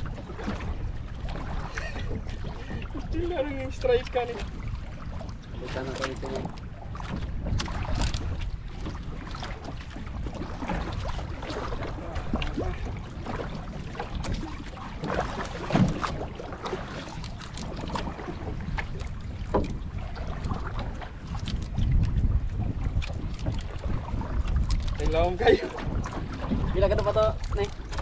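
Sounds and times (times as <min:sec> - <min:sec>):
wind and water against hull: 0:00.0 - 0:28.0
knocks on boat: 0:11.7 - 0:22.2.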